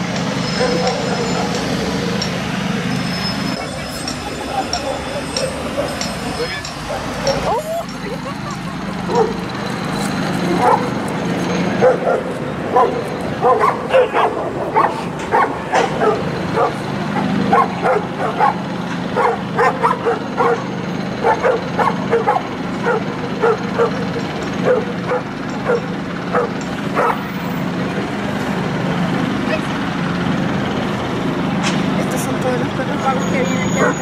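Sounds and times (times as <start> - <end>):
dogs barking: 0.4 - 2.3, 4.3 - 27.4.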